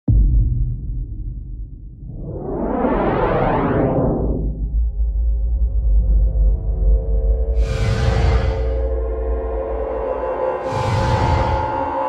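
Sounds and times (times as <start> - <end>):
deep low musical boom: 0.1 - 3.0.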